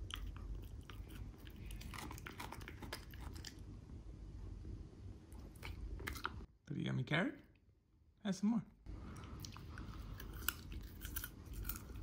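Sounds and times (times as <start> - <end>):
dog crunching a carrot: 0.0 - 3.6, 5.4 - 6.4, 9.1 - 12.0.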